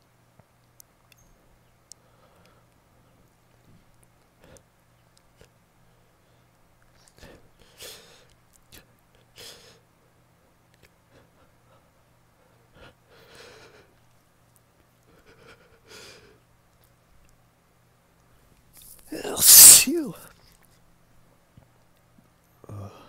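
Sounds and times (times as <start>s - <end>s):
person sniffing: 18.9s - 20.2s.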